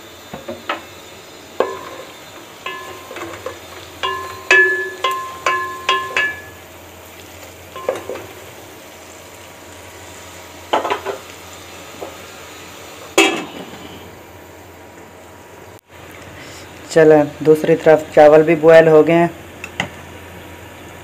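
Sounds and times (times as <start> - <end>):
metal spoon clanking in pot: 1.6 - 6.6, 7.8 - 8.3.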